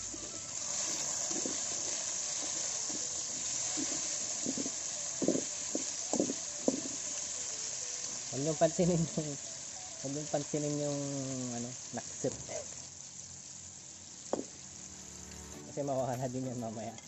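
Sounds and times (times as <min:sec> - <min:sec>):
onions sizzling in hot oil: 0:00.0 - 0:17.0.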